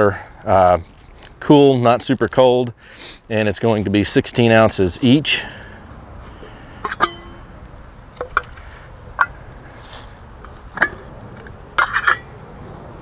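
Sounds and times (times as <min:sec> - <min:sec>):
pot lids clinking: 0:06.9 - 0:07.5, 0:11.8 - 0:12.2.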